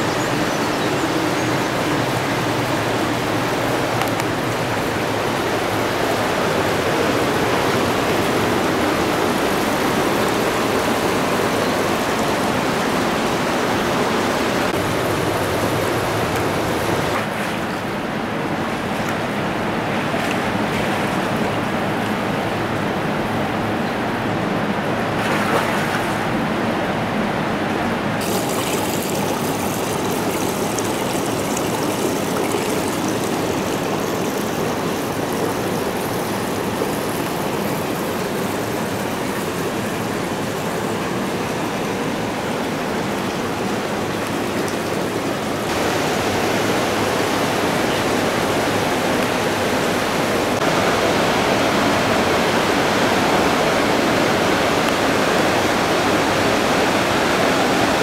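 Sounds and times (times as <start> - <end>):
rushing water: 0.0 - 58.0.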